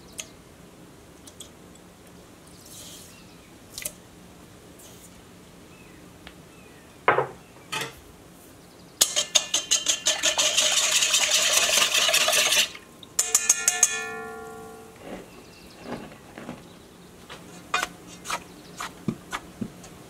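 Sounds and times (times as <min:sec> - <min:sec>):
whisk tapping on ringing bowl: 0:09.0 - 0:12.6, 0:13.2 - 0:15.0
whisk clinking in steel bowl: 0:09.0 - 0:14.8.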